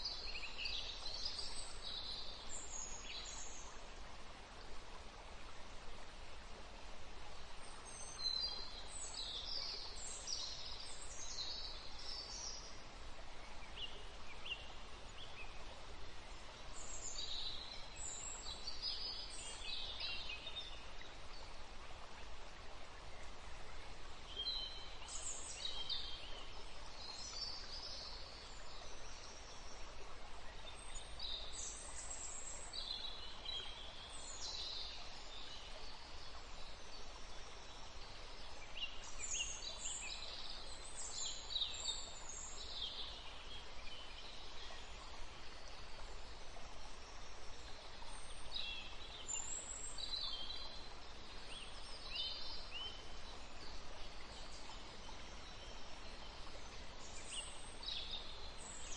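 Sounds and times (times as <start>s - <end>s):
small birds chirping and twittering: 22.8s - 58.9s.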